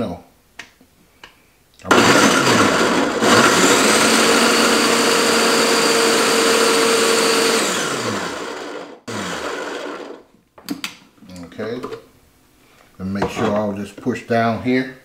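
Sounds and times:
food processor motor running: 0:01.9 - 0:10.2.

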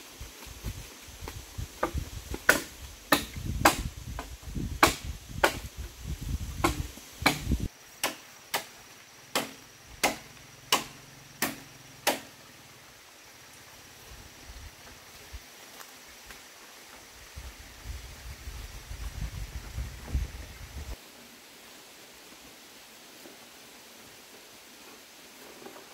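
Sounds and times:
blade chopping bamboo: 0:01.8 - 0:05.7, 0:06.6 - 0:08.7, 0:09.3 - 0:12.3.

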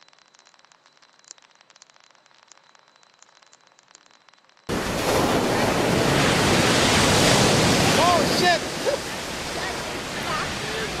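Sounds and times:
faint crackle: 0:00.0 - 0:05.6
ocean surf: 0:04.7 - 0:11.0.

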